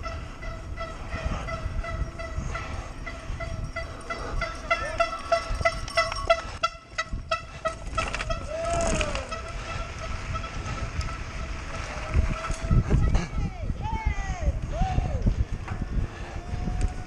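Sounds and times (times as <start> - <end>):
bike rattling on rough trail: 0.0 - 13.4.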